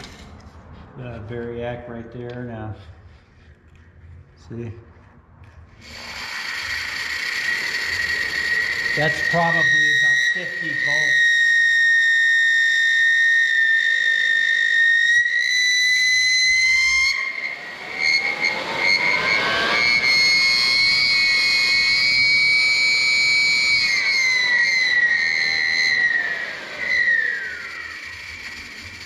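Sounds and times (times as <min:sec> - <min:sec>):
electric blower motor whining: 0:05.8 - 0:29.0.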